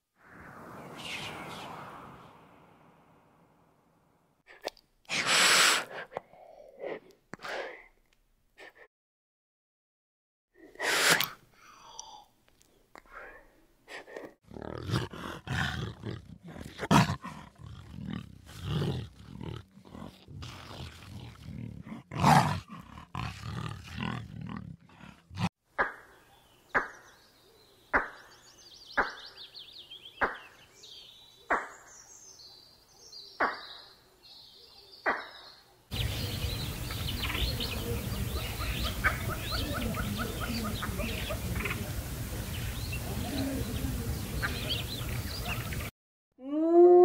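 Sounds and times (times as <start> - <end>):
animal roars and grunts: 14.4 - 25.5.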